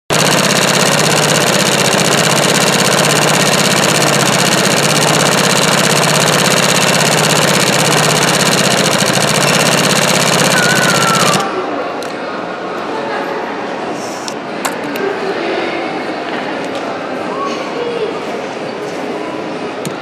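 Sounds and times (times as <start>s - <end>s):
embroidery sewing machine stitching: 0.1s - 11.5s.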